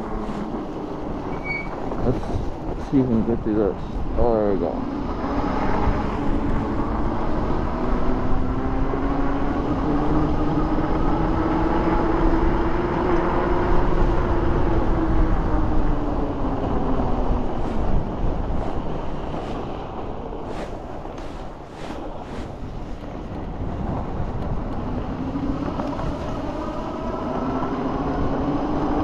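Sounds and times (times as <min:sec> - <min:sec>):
wind rush: 0:00.0 - 0:29.0
tyre noise: 0:17.0 - 0:24.8.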